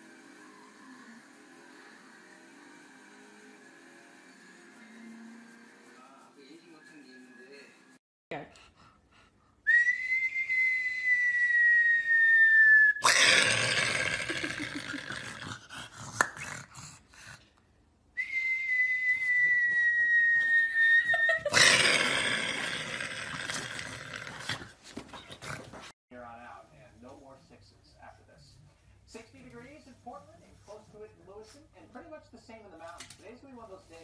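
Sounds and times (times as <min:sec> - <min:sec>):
high whistle-like tone: 0:09.7 - 0:13.0, 0:18.2 - 0:21.4
rustling and rubbing of dog fur: 0:26.6 - 0:34.0.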